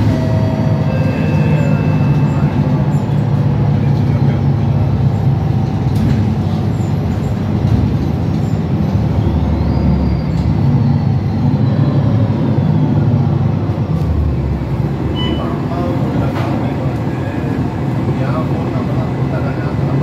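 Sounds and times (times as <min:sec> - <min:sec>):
bus engine and road drone: 0:00.0 - 0:20.0.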